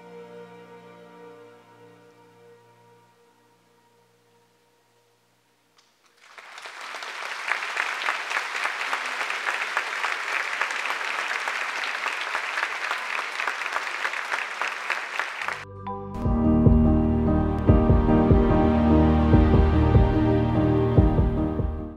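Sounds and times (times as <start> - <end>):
music: 0.0 - 5.8, 15.5 - 21.9
audience applauding: 6.0 - 15.6.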